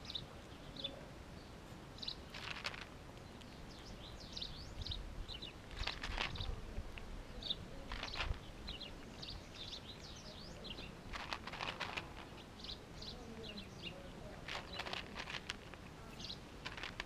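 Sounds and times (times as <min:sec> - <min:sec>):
small birds chirping: 0:00.0 - 0:17.0
cats eating from plastic tray: 0:02.2 - 0:03.6, 0:05.6 - 0:12.7, 0:14.1 - 0:17.0.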